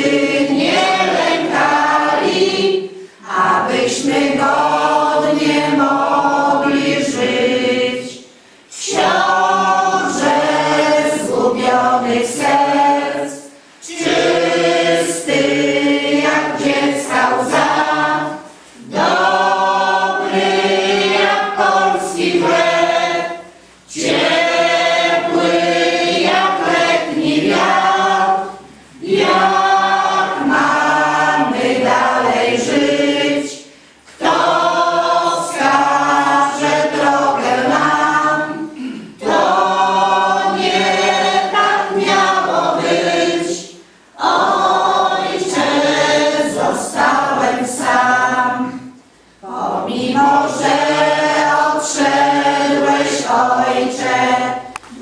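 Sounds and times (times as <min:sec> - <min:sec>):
choir singing a hymn: 0:00.0 - 0:55.0.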